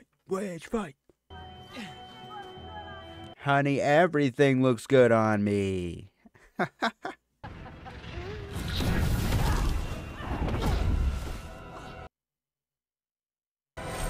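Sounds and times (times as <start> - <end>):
crash and boom hits: 7.8 - 11.5.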